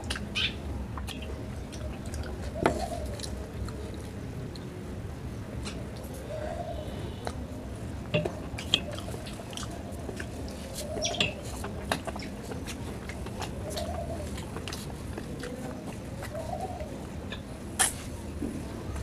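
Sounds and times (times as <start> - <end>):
chewing and wet mouth smacks: 1.0 - 4.7, 8.3 - 16.5
pigeon cooing: 1.2 - 4.2, 6.0 - 17.6.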